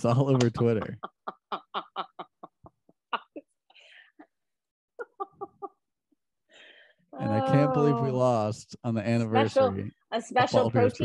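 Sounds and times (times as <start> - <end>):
woman laughing hard: 0.4 - 3.4, 5.0 - 5.7
breathy gasp: 6.5 - 7.1.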